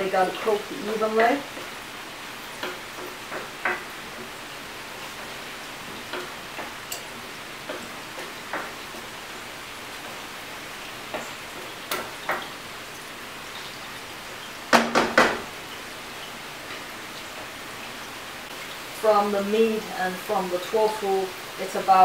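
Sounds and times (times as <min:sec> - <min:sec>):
food sizzling in a wok: 0:00.0 - 0:22.0
spatula knocking on wok: 0:02.6 - 0:04.3, 0:14.7 - 0:15.6.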